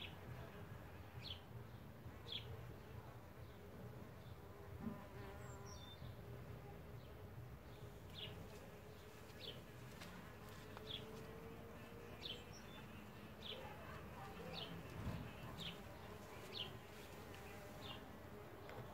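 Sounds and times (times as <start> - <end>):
bees buzzing: 7.8 - 18.9
bird chirping: 10.8 - 16.8.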